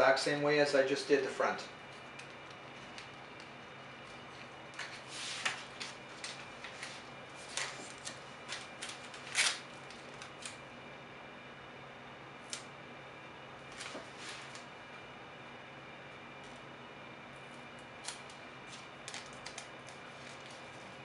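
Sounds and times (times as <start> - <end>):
vinyl and paper crinkling: 1.9 - 10.5, 18.0 - 21.0.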